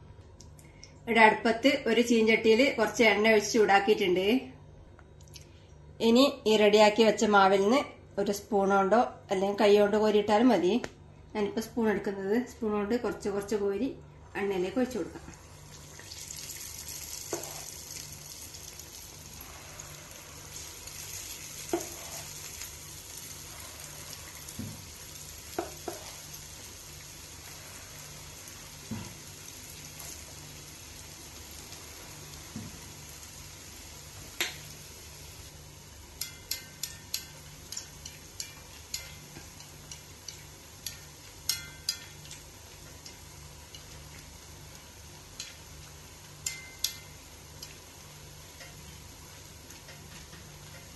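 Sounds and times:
batter sizzling in hot oil: 15.3s - 50.9s
steel spoon clicking against pan: 36.2s - 43.9s, 46.4s - 47.8s, 48.5s - 48.8s.

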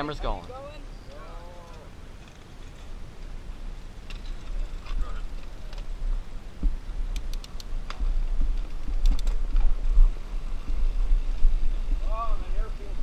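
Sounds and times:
mountain bike low rumble: 1.1s - 13.0s
bike clicks and rattles: 7.1s - 10.0s.

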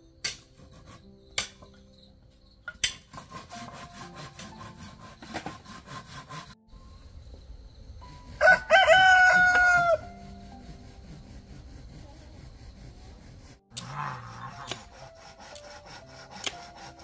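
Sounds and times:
knife scraping wood: 0.3s - 1.8s, 2.8s - 6.6s, 10.2s - 17.0s
rooster crowing: 8.4s - 10.2s.

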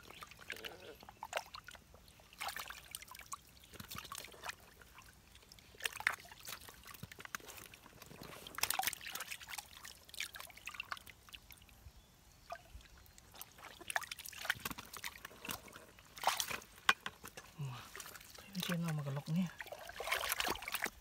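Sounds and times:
hands splashing in muddy water: 2.3s - 11.1s, 13.3s - 21.0s
water dripping: 12.4s - 21.0s.

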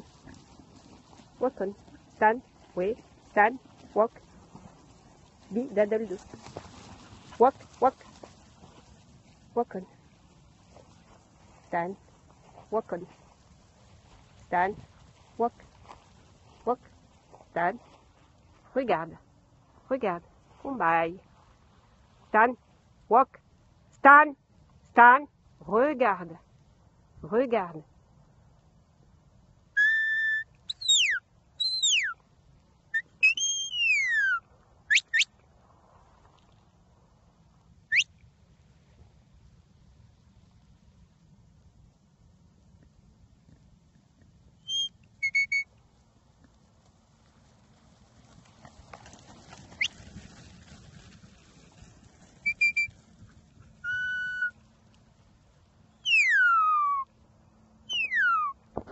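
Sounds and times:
whistle commands: 29.8s - 32.2s, 33.0s - 35.3s, 44.7s - 45.7s, 52.4s - 52.9s, 53.8s - 54.6s, 56.0s - 57.0s, 57.9s - 58.6s.

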